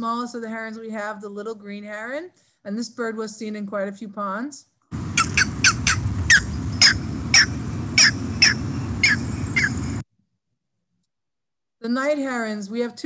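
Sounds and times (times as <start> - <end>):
heron squawks: 5.0 - 10.0.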